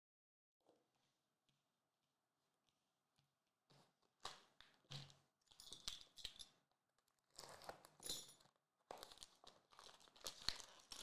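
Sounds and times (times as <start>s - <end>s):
plastic wrap crinkling and tearing: 7.0s - 8.0s, 8.9s - 11.0s.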